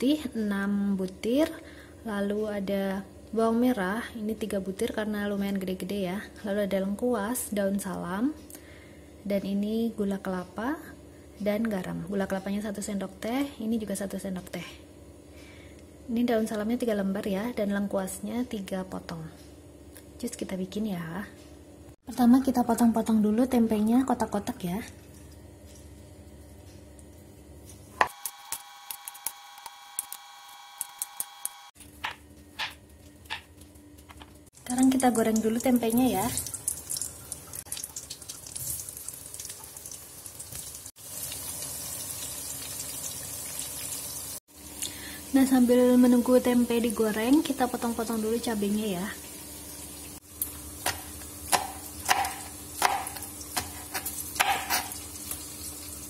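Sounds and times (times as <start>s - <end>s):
knife chopping on plastic board: 32.0s - 33.5s, 50.8s - 54.9s.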